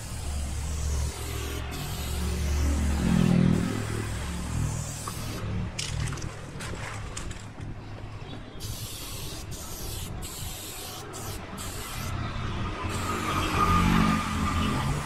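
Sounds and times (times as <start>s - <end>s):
spray-paint can hissing: 0.0s - 5.5s, 8.6s - 12.2s, 12.9s - 13.6s.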